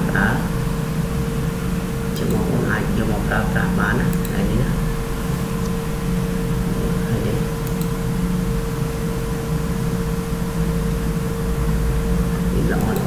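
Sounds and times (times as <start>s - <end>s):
mechanical hum and hiss: 0.0s - 13.0s
faint clicks: 7.6s - 7.9s.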